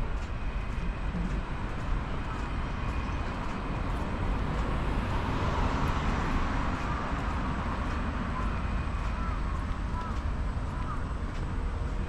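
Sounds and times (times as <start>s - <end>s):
road traffic rumble: 0.0s - 12.0s
car passing by: 2.3s - 10.0s.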